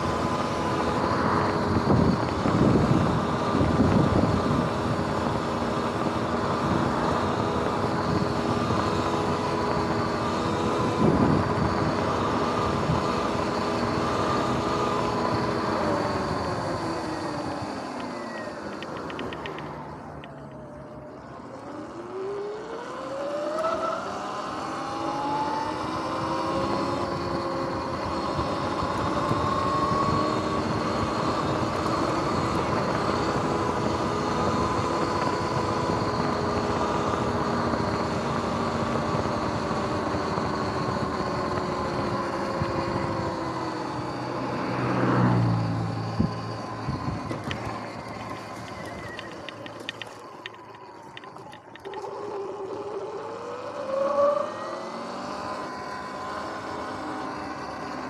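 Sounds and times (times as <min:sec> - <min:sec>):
wind noise: 0:00.0 - 0:17.8, 0:25.6 - 0:52.0
electric motorbike motor whining: 0:00.0 - 0:58.0.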